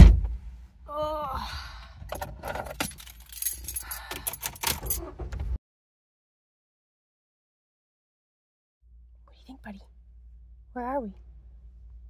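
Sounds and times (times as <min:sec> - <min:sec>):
small metal pieces jangling: 0:02.6 - 0:05.0.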